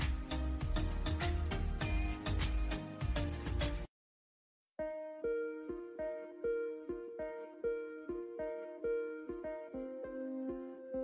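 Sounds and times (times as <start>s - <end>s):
music with steady drum beat: 0.0s - 3.9s.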